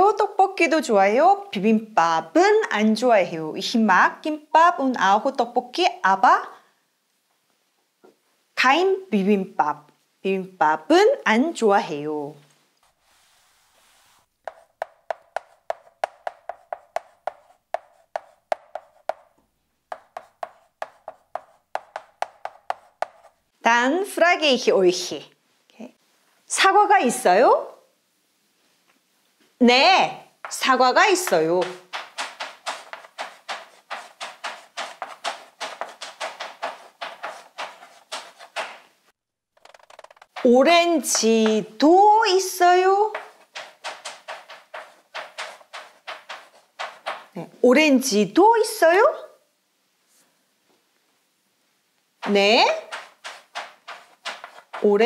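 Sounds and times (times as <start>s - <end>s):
board eraser rubbing: 12.8s - 23.4s, 30.4s - 38.9s, 39.6s - 41.3s, 43.1s - 47.4s, 52.2s - 55.0s
chalk tapping on blackboard: 13.8s - 23.4s, 30.4s - 38.9s, 39.6s - 41.6s, 43.0s - 47.4s, 52.2s - 55.0s.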